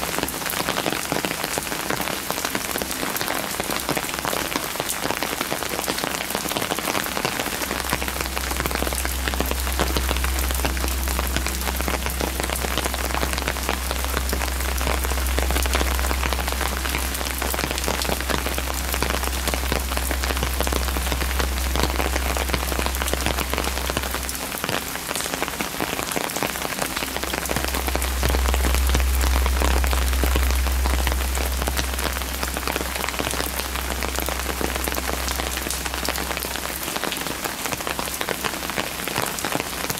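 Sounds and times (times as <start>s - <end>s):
rain spattering on stone: 0.0s - 39.9s
low rumble: 7.0s - 38.6s.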